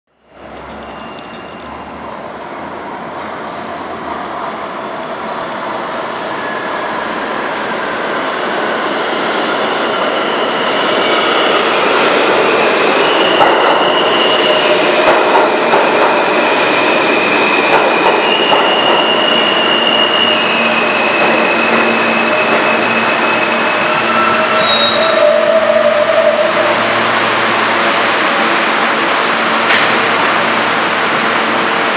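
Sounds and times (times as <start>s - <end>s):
subway train braking: 0.2s - 31.9s
wheels and brakes squealing: 0.6s - 2.0s, 17.1s - 26.7s
air brake hiss: 14.1s - 15.6s.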